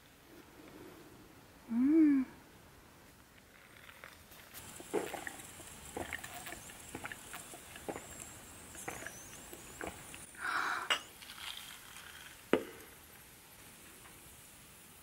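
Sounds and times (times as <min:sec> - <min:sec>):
sausages crackling on a grill: 0:03.4 - 0:15.0.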